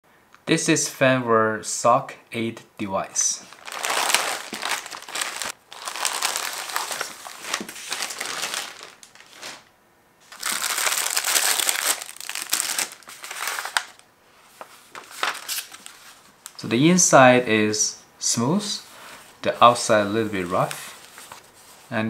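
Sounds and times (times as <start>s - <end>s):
plastic bags crinkling: 3.4s - 14.0s, 14.9s - 16.6s.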